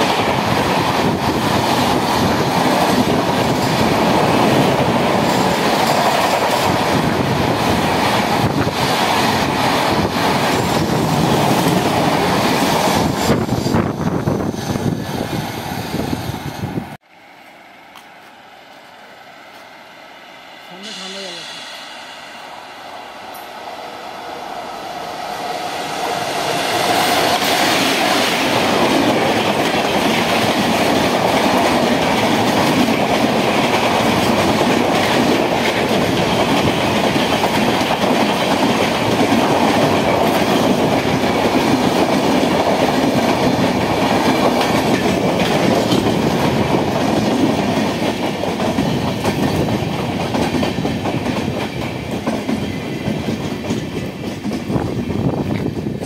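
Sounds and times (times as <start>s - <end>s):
express train passing at speed: 0.0s - 56.0s
wheels clacking over rail joints: 26.0s - 56.0s.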